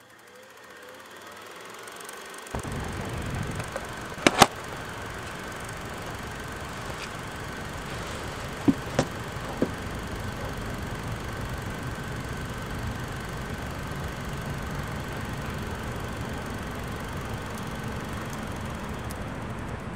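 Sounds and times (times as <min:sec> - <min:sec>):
faint steady whine: 0:00.0 - 0:19.9
sharp clicks: 0:02.6 - 0:13.3
low outdoor rumble: 0:02.6 - 0:19.9.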